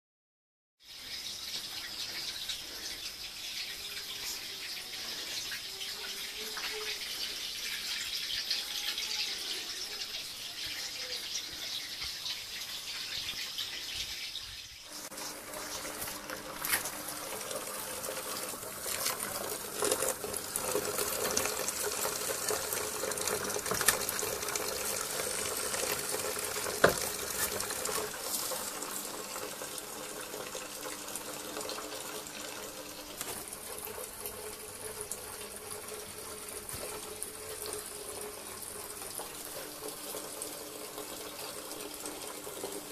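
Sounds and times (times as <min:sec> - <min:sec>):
running water: 0:00.8 - 0:42.9
liquid pouring into a bucket: 0:14.9 - 0:42.9.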